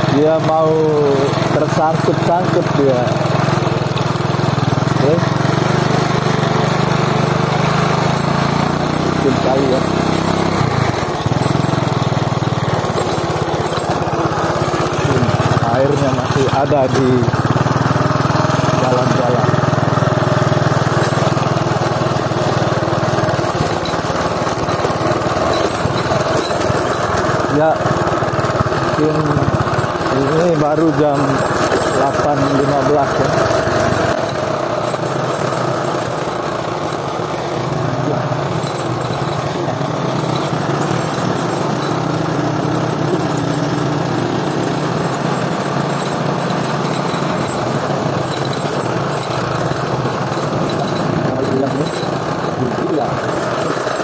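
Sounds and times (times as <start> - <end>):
small motorcycle engine running: 0.0 - 54.0.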